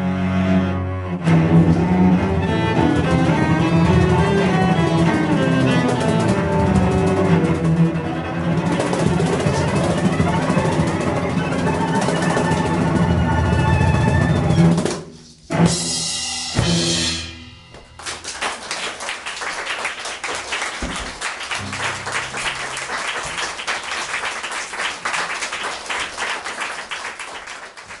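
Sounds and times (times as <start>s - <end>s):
cellos and drums closing chords: 1.1s - 18.2s
audience applause: 8.6s - 13.0s, 18.0s - 28.0s.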